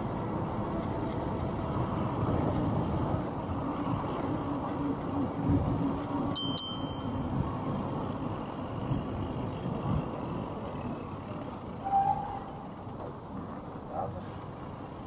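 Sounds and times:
traffic: 0.0s - 15.0s
bike tyre and wind noise: 1.2s - 12.0s.

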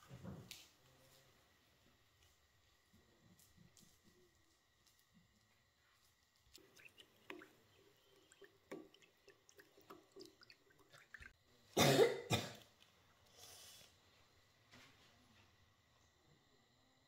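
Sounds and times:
child coughing: 11.8s - 12.6s.

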